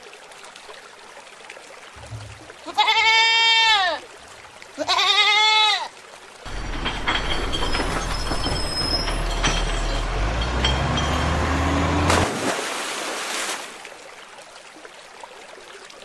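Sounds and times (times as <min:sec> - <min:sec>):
truck engine running: 0:06.5 - 0:12.2
splash into river water: 0:11.7 - 0:14.1.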